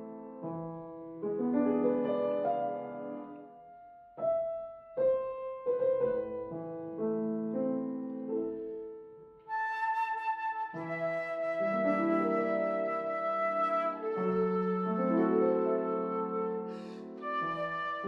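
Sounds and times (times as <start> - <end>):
piano playing chords: 0.0 - 18.0
flute holding a high note: 9.5 - 18.0.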